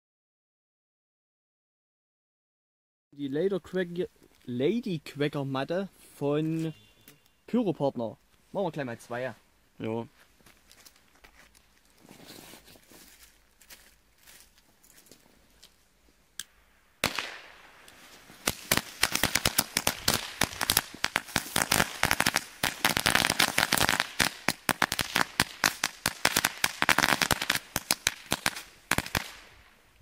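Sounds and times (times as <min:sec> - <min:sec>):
string firecrackers banging: 0:17.0 - 0:29.6.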